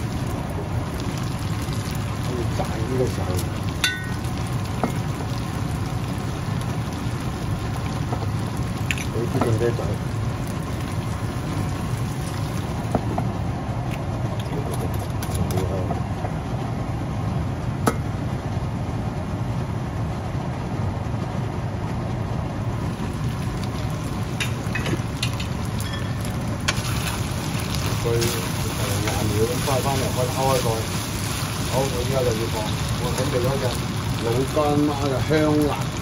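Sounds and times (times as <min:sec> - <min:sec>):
chicken sizzling in a frying pan: 0:00.0 - 0:13.4, 0:22.8 - 0:36.0
range hood fan rumble: 0:00.0 - 0:36.0.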